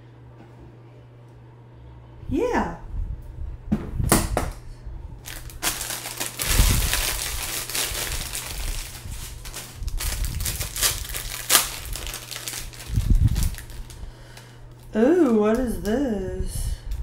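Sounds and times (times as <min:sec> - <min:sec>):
foil wrapping crinkling: 0:05.2 - 0:15.9.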